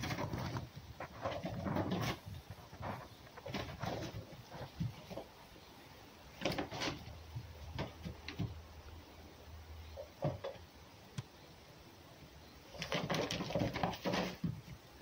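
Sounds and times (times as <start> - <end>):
fox scuffling rustles: 0.0 - 9.0, 12.6 - 15.0.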